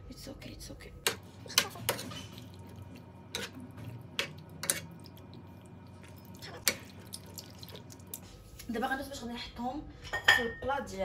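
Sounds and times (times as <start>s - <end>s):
light wet sounds: 1.1s - 8.8s
utensils clinking against a pot: 3.3s - 5.0s.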